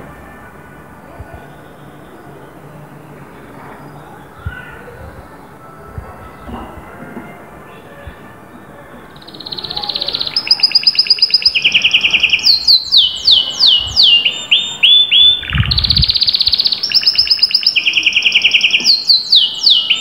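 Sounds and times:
canary singing: 8.9 - 20.0.

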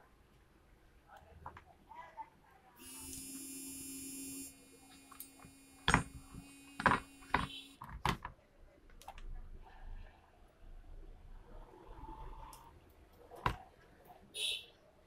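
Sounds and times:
steady buzzing tone: 2.8 - 7.8
circuit board knocking on plastic: 5.4 - 8.3.

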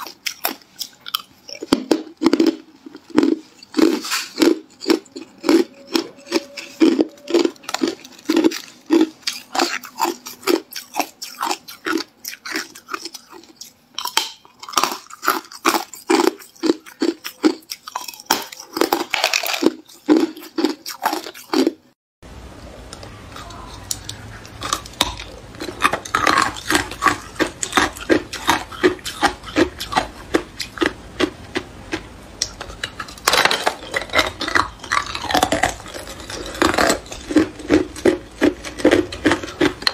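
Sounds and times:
ice being chewed: 0.0 - 22.0, 23.3 - 39.9
low steady hum: 22.2 - 39.9.

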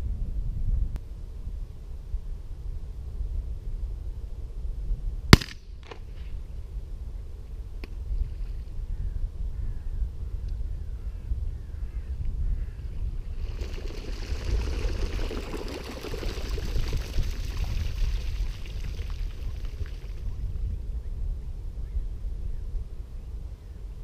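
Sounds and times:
low wind rumble: 0.0 - 24.0
waterbirds splashing: 13.3 - 20.4.

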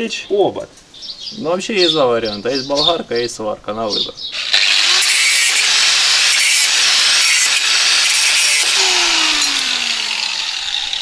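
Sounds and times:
angle grinder cutting metal: 4.4 - 11.0.

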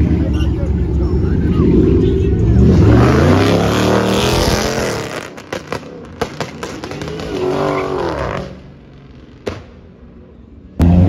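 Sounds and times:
car engine at full throttle: 0.0 - 11.0
sharp cracks: 5.0 - 7.8.

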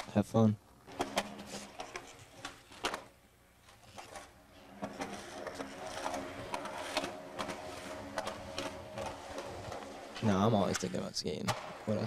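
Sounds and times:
skateboard wheels rattling roll: 4.0 - 11.9
skateboard clack: 11.5 - 12.0.

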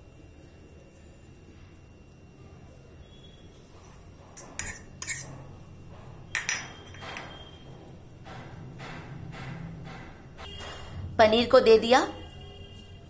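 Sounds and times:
cutlery clinking on dishes: 4.4 - 5.4, 6.4 - 7.4.

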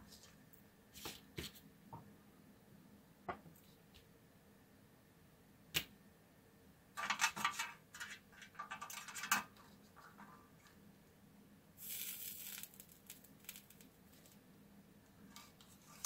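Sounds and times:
scraping and rattling on metal tin: 7.0 - 9.5.

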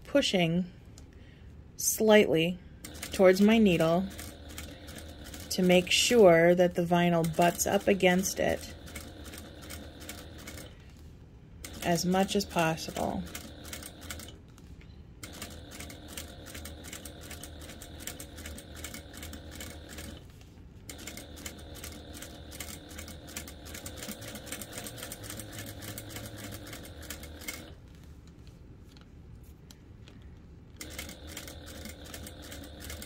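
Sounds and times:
sewing machine needle ticking: 2.8 - 3.4, 8.5 - 10.7, 15.2 - 20.2, 20.9 - 27.7, 30.8 - 33.0
sewing machine low hum: 2.8 - 10.9, 11.6 - 28.0, 30.8 - 33.0.

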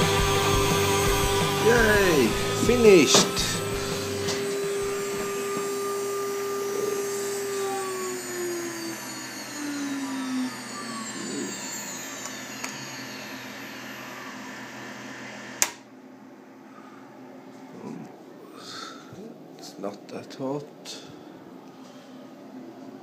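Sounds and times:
coolant pump humming: 0.0 - 15.6
router spindle whining: 0.0 - 15.9.

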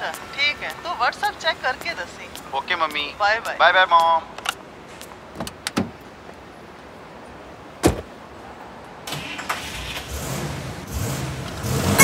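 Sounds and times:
car door slamming: 5.3 - 6.0, 7.8 - 8.1
car engine starting and running: 9.0 - 12.0.

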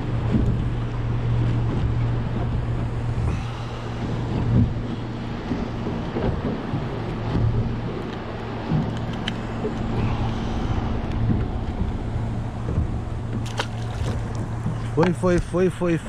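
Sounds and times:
boat motor humming: 0.0 - 16.0
wind buffeting microphone: 0.0 - 16.0.

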